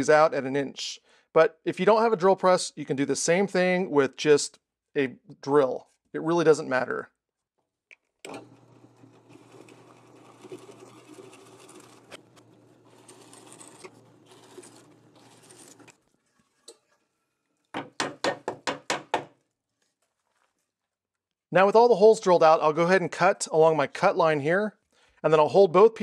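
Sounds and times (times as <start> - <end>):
drill press motor hum: 8.2 - 15.9
sharp knocks: 17.8 - 19.3.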